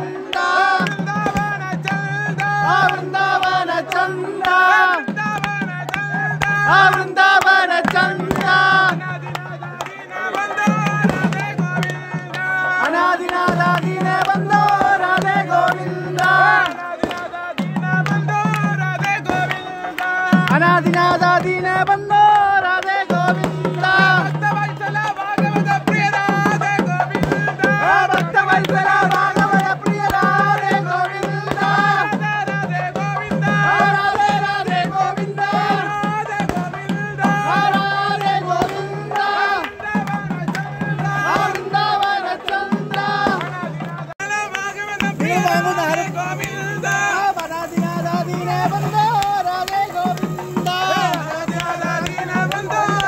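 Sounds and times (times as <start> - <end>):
quick drum strokes: 10.6 - 53.0.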